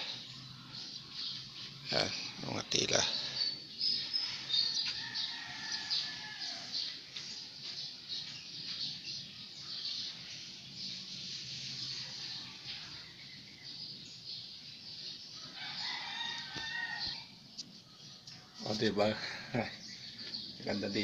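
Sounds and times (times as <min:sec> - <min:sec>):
small birds chirping: 0:00.0 - 0:21.0
rooster crowing: 0:04.4 - 0:06.9, 0:15.4 - 0:17.3.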